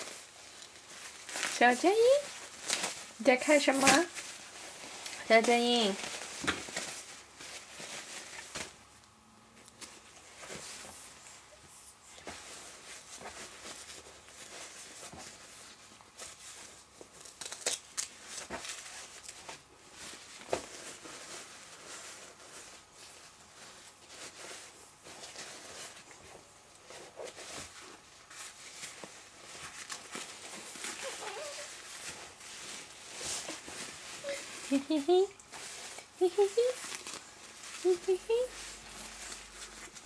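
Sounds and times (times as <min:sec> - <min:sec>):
diaper and clothes rustling: 0:00.0 - 0:08.9, 0:09.6 - 0:40.0.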